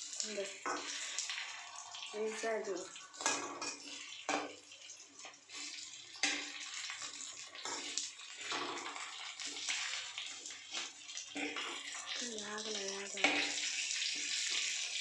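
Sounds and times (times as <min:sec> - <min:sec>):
fish sizzling in oil: 0:00.0 - 0:15.0.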